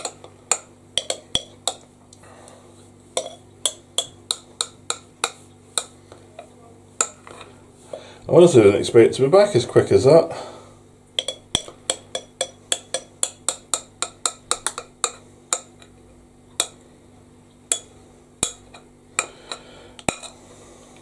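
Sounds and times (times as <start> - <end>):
spoon clinking against glass bowl: 0.0 - 1.8, 3.2 - 5.9, 11.2 - 15.8.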